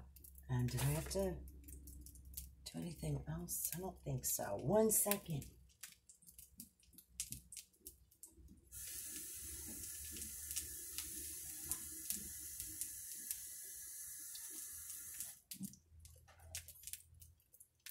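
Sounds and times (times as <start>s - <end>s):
kitchen tap running water: 8.5s - 15.6s.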